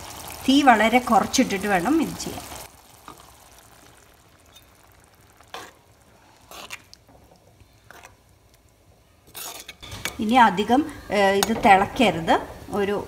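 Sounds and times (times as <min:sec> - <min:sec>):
faint simmering sizzle: 0:00.0 - 0:13.0
spoon scraping and sloshing in pot: 0:04.4 - 0:08.2, 0:09.2 - 0:10.2.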